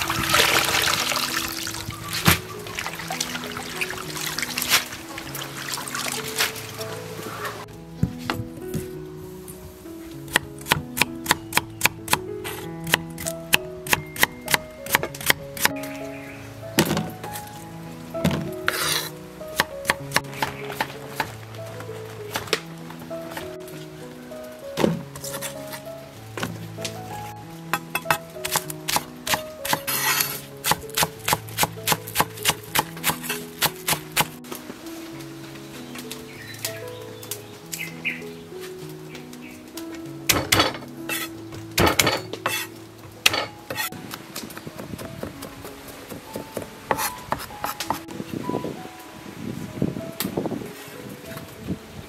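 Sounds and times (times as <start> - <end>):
background music: 0.0 - 52.0
cleaver chopping on wooden board: 27.8 - 34.3.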